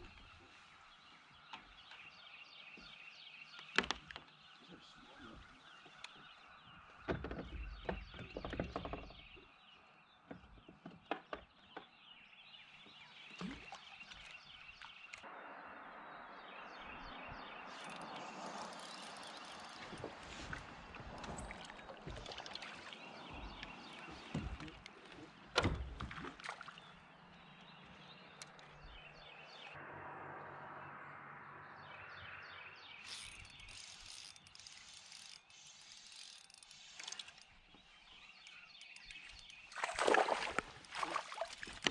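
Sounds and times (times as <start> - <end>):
fishing reel whirring and ticking: 17.8 - 19.8, 33.1 - 37.4.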